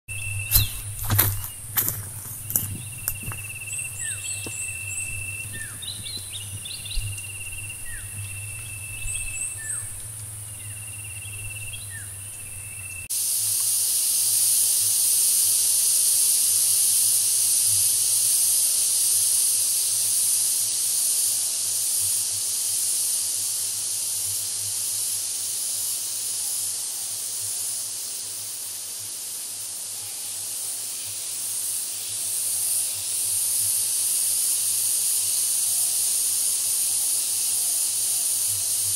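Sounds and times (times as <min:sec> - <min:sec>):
high insect note: 0:00.1 - 0:20.6
high-pitched insect chorus: 0:00.1 - 0:38.9.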